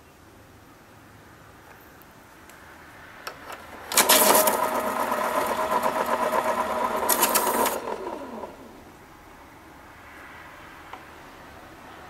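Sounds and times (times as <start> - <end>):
electric pencil sharpener grinding: 4.0 - 8.7.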